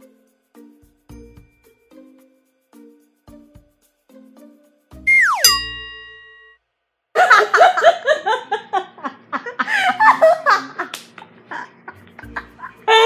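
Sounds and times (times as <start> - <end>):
brief ringing tone: 5.1 - 6.5
falling pitch glide: 5.1 - 6.5
young women laughing: 7.2 - 13.0.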